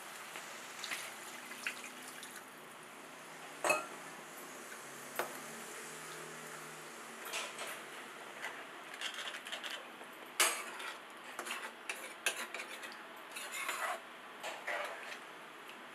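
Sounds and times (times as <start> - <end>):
ladle stirring gravy: 10.4 - 14.0.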